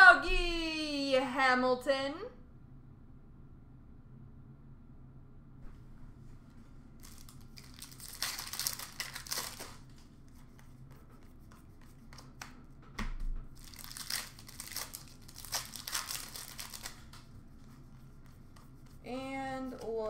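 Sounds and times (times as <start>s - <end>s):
plastic wrappers torn and crinkled: 7.0s - 10.1s, 13.6s - 17.2s.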